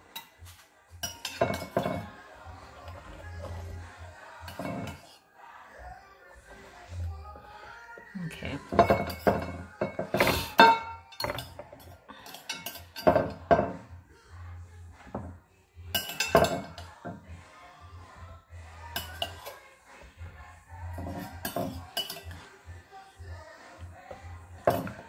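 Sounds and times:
spoon clinking against ceramic bowl: 0:01.0 - 0:02.1, 0:04.5 - 0:05.2, 0:08.7 - 0:13.8, 0:15.9 - 0:17.1, 0:18.9 - 0:19.6, 0:20.9 - 0:22.4, 0:24.6 - 0:25.0.

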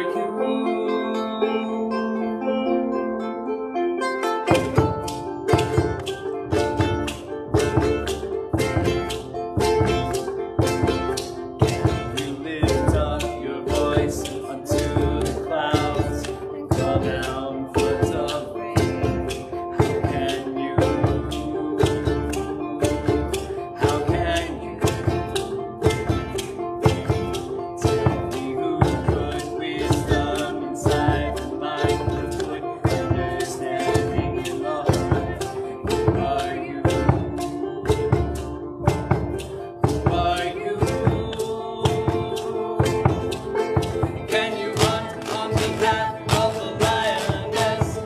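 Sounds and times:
banjo: 0:00.0 - 0:48.0
guitar or ukulele: 0:00.0 - 0:48.0
mandolin: 0:00.0 - 0:48.0
upright bass: 0:00.0 - 0:48.0
drum kit beat: 0:04.5 - 0:48.0.

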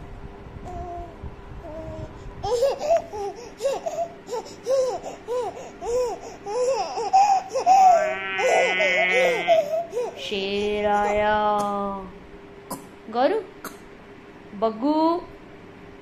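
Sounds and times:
baby laughing: 0:02.4 - 0:11.3.

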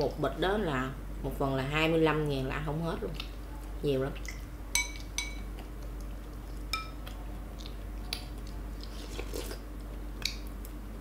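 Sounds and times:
soft chewing: 0:03.0 - 0:11.0
spoons clinking against glass bowls: 0:04.8 - 0:05.5, 0:06.7 - 0:07.0.

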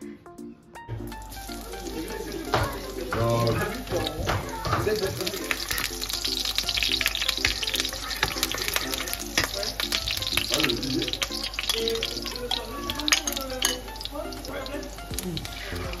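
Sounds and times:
garlic sizzling in hot oil: 0:01.2 - 0:16.0
spatula stirring in wok: 0:01.6 - 0:13.9.

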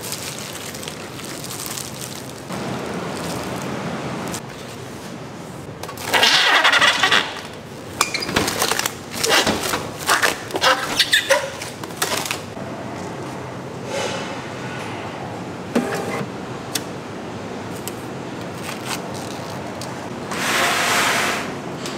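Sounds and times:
plastic film tearing: 0:00.0 - 0:03.7, 0:06.0 - 0:07.6, 0:08.3 - 0:12.5
plastic film crinkling: 0:00.0 - 0:04.8, 0:08.4 - 0:12.6, 0:18.6 - 0:20.0.

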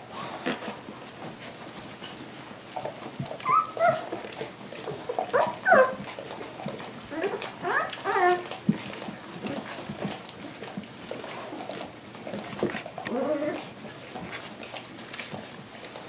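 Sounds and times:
puppies whimpering and squealing: 0:03.3 - 0:09.9, 0:13.0 - 0:14.8.

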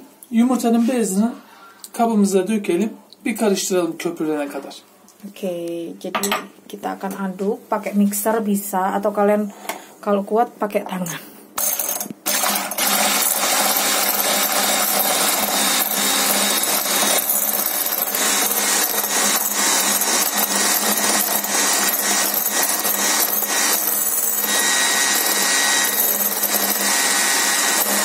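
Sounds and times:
electric hand mixer running: 0:11.6 - 0:28.0.

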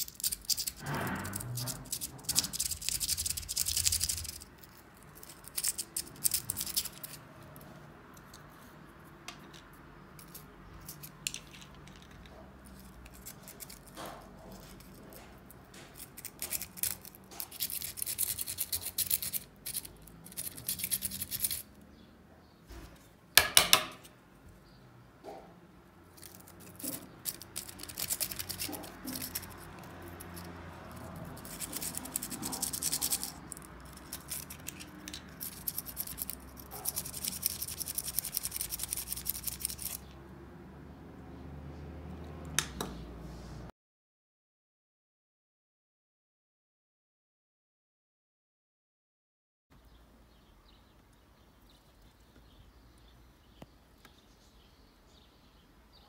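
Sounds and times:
plastic parts scratching and rubbing: 0:00.0 - 0:21.7, 0:26.1 - 0:40.1.

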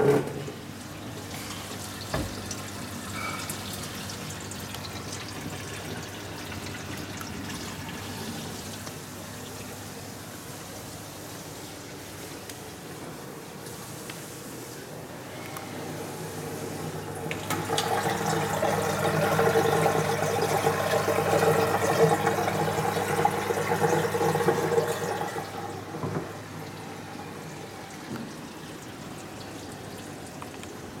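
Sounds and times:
pump hum: 0:15.0 - 0:31.0.

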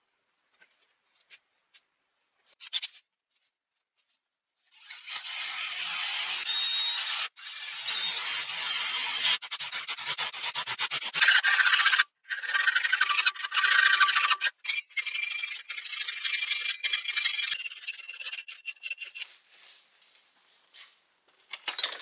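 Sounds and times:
power drill boring through steel: 0:04.8 - 0:10.1, 0:11.0 - 0:19.2.

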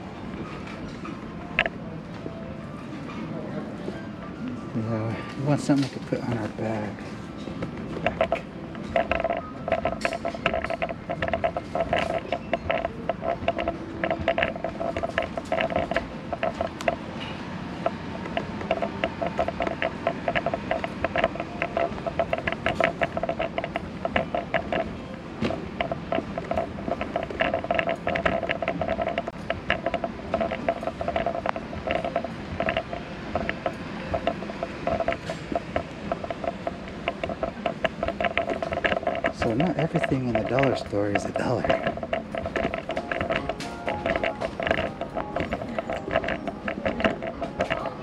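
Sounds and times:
background music over store speakers: 0:00.0 - 0:27.2, 0:41.4 - 0:48.0
small clicks and knocks: 0:05.7 - 0:48.0.

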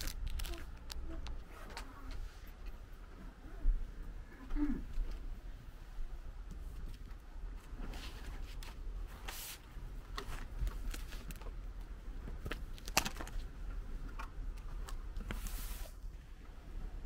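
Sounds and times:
plastic sheets rustling: 0:00.0 - 0:02.4, 0:07.6 - 0:11.6
low background rumble: 0:00.0 - 0:17.0.

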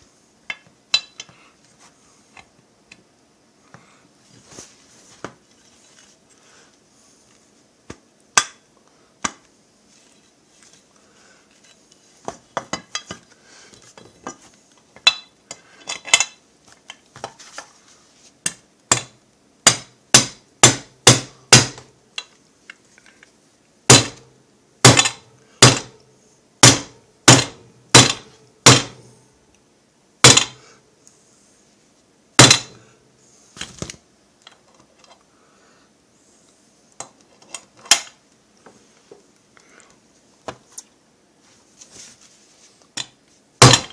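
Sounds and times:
mallet striking steel: 0:19.7 - 0:21.8, 0:23.9 - 0:24.2, 0:24.9 - 0:25.9, 0:26.6 - 0:29.0, 0:32.4 - 0:32.8, 0:43.6 - 0:43.9.

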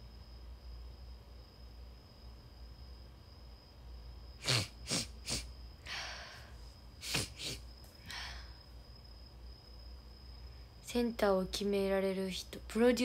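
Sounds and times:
mouth clicks: 0:04.4 - 0:05.5, 0:07.0 - 0:07.6
breathy exhale: 0:04.4 - 0:08.6.

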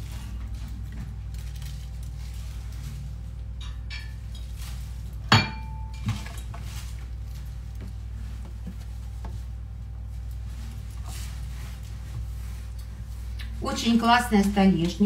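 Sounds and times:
steady low hum: 0:00.0 - 0:15.0
kitchenware clanking: 0:03.6 - 0:04.6, 0:05.3 - 0:06.5.

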